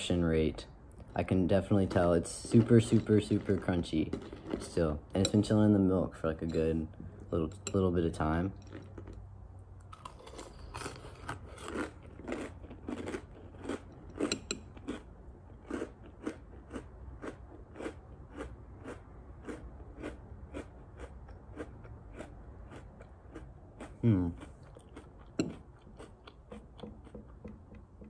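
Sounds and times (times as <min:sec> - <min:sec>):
person chewing crunchy cereal: 0:01.7 - 0:05.0, 0:08.5 - 0:09.2, 0:09.8 - 0:27.6.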